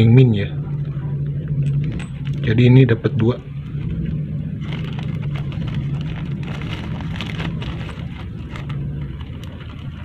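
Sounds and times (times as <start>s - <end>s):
steady low hum: 0.0s - 10.0s
plastic bag crinkling: 3.6s - 10.0s.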